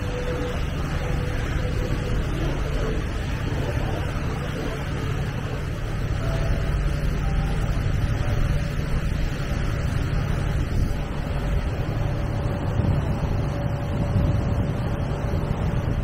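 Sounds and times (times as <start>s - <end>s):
faint steady whine: 0.0s - 16.0s
ship engine droning: 0.0s - 16.0s
water rushing along hull: 0.0s - 16.0s.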